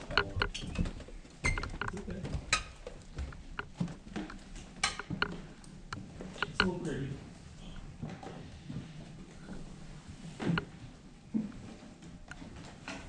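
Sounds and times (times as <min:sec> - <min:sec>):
footsteps of people walking: 0:00.0 - 0:13.0
clicks and knocks: 0:03.5 - 0:05.4.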